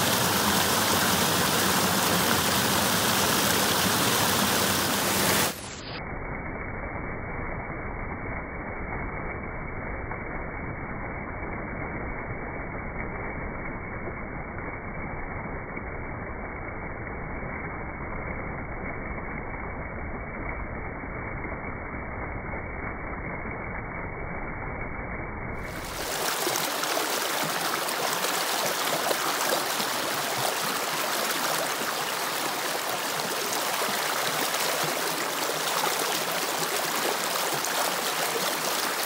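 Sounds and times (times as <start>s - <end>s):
river water rushing: 0.0s - 5.8s, 25.6s - 39.0s.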